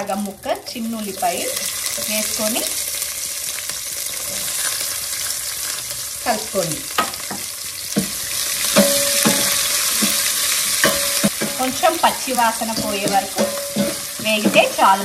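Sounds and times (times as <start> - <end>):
onion sizzling in hot oil: 0.0 - 15.0
spoon scraping and knocking pan: 7.0 - 15.0.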